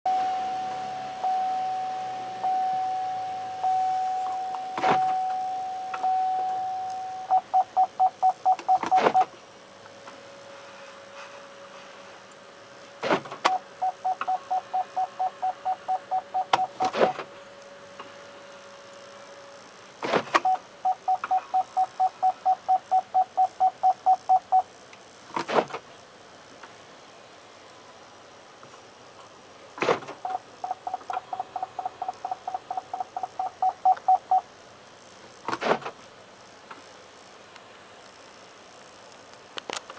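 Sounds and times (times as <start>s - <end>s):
car warning chime: 0.1s - 9.3s, 13.5s - 16.8s, 20.5s - 24.7s, 30.2s - 34.4s
quick parking warning beeps: 0.1s - 9.3s, 13.5s - 16.9s, 20.4s - 24.7s, 30.2s - 34.5s.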